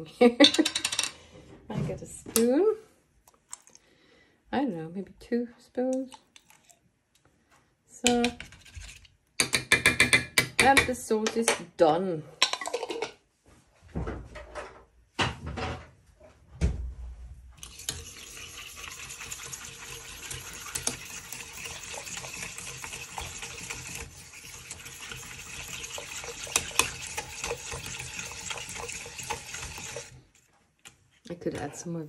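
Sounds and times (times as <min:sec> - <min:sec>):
whisk beating sauce in saucepan: 0:17.6 - 0:30.5.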